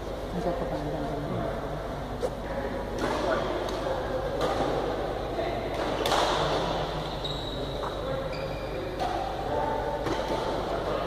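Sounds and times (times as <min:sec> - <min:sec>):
racket hitting shuttlecock: 0:05.7 - 0:07.0, 0:08.9 - 0:10.8
shoe squeaks on court floor: 0:07.0 - 0:08.9.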